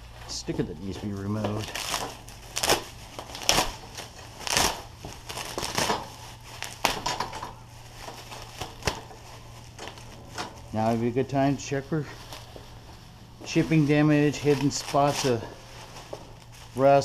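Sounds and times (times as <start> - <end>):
plastic wrap crinkling: 0.0 - 17.0.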